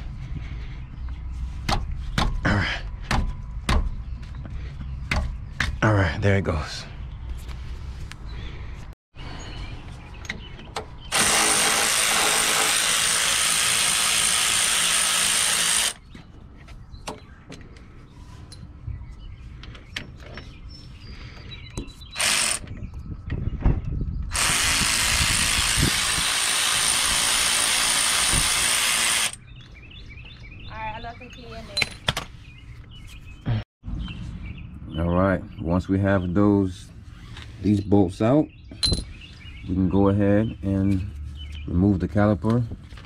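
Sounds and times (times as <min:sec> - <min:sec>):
electric ratchet motor: 0:11.1 - 0:16.0, 0:22.2 - 0:22.6, 0:24.3 - 0:29.4.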